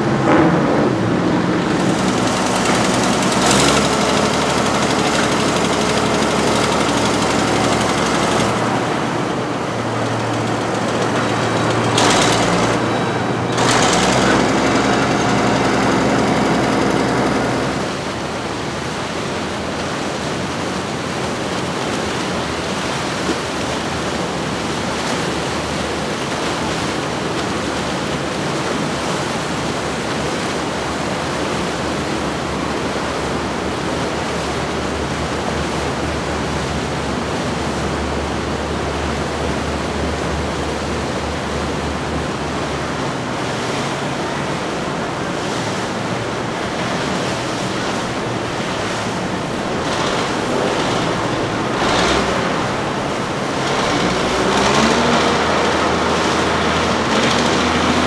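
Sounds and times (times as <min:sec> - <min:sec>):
motorboat engines rumbling: 0:00.0 - 0:58.0
rush of boat wake: 0:00.0 - 0:58.0
wind: 0:00.0 - 0:58.0.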